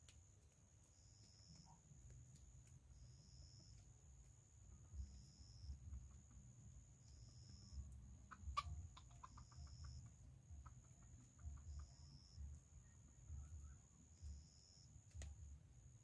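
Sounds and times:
faint chicken clucking: 4.7 - 15.3.

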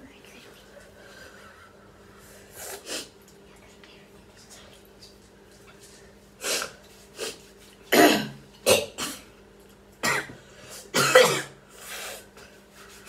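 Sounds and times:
person coughing: 7.9 - 9.3, 10.0 - 11.6.

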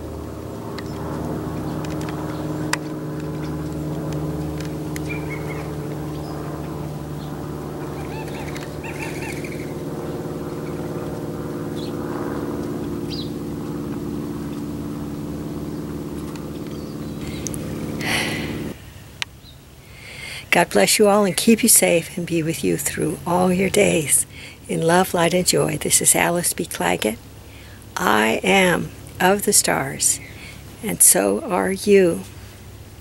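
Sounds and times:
low mechanical hum: 0.0 - 33.0
quail calling short notes: 7.8 - 9.7.

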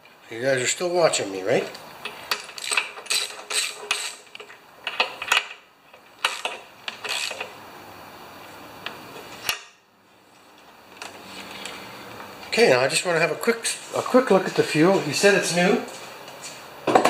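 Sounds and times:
wrench and socket clinking: 2.0 - 5.5.

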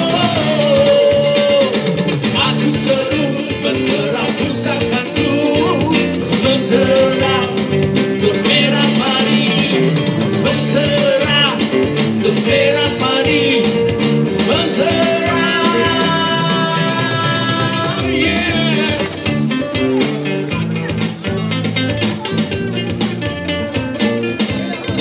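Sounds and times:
man singing into microphone: 0.0 - 19.3
guitar: 0.0 - 25.0
tambourine beat: 0.0 - 25.0.

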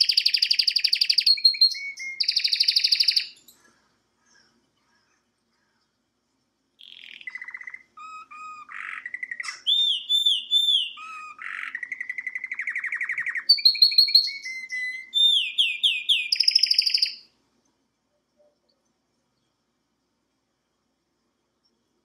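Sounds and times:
canary singing trills and whistles: 0.0 - 3.5, 6.8 - 17.3.

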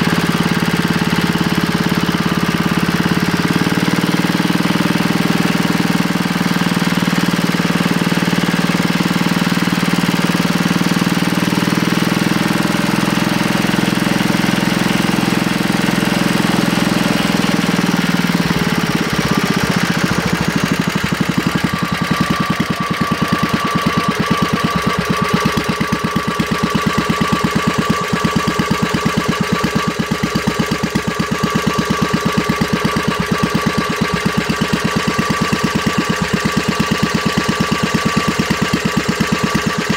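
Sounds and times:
engine running and idling: 0.0 - 39.9
steady high whine: 17.0 - 31.0.

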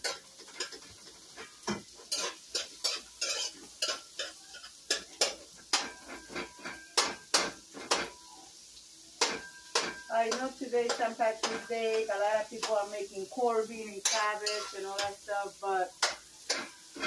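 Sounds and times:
utensil scraping a metal pan: 0.0 - 7.2, 14.0 - 15.2
onion sizzling in oil: 0.0 - 17.0.

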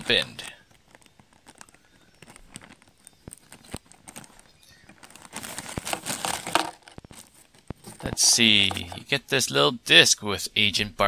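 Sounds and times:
plastic bag crinkling: 0.0 - 9.0
scissors snipping plastic bag: 0.8 - 8.8.

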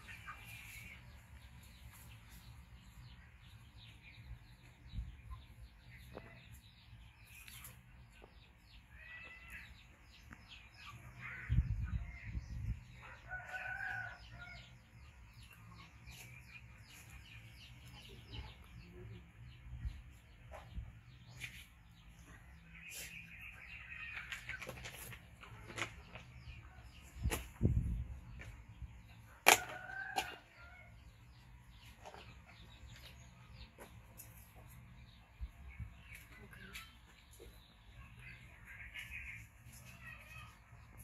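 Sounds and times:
chicken calls: 8.8 - 12.4.

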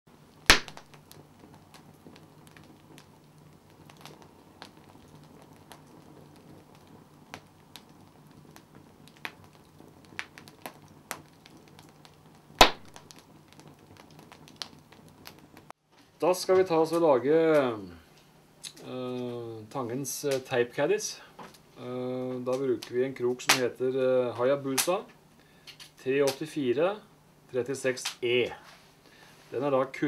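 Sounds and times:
loud pops from fire: 0.1 - 17.7, 21.4 - 23.8, 24.4 - 26.5, 28.0 - 28.6
wood fire crackling: 0.1 - 30.0.

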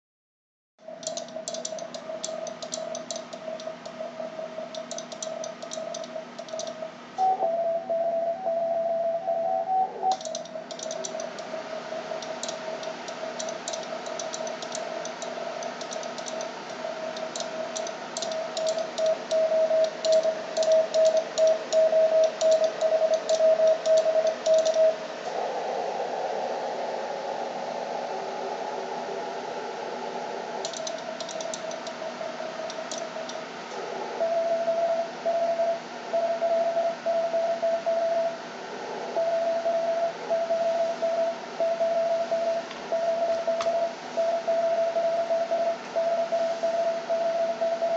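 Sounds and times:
morse code tone: 0.8 - 25.0, 39.2 - 47.9
keying clicks: 1.0 - 4.0, 4.7 - 6.8, 10.1 - 24.9, 30.6 - 32.0, 32.6 - 33.4
second higher morse tone: 6.5 - 10.2, 39.2 - 47.9.

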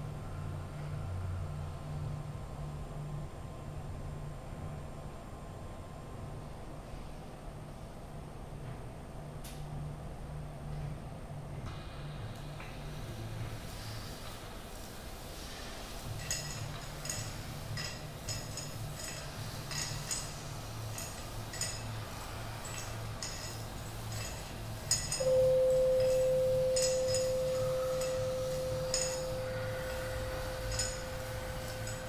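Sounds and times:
low steady hum: 0.0 - 32.0
pure ringing tone: 24.9 - 32.0.

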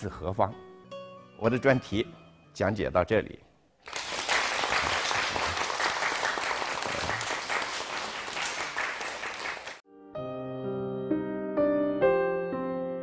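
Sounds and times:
students applauding: 3.8 - 9.8
piano music: 9.8 - 13.0.

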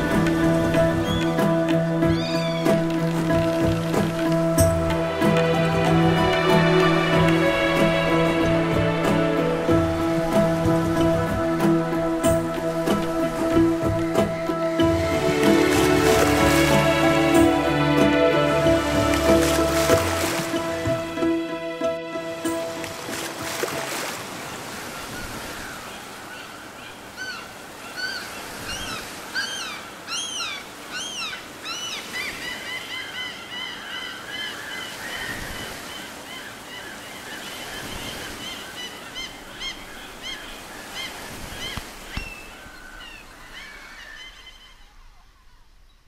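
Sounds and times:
gentle surf: 0.0 - 46.0
birds chirping and whistling: 0.8 - 2.8.

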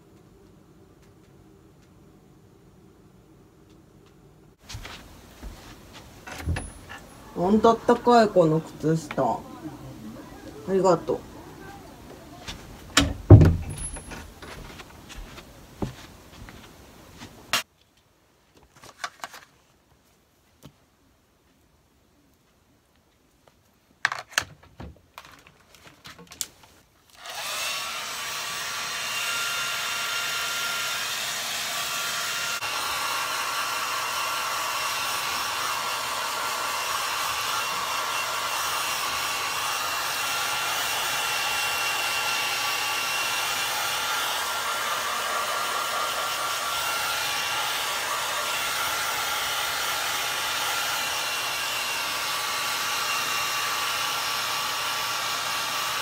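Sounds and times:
hair dryer blowing: 6.4 - 11.6, 27.1 - 56.0.

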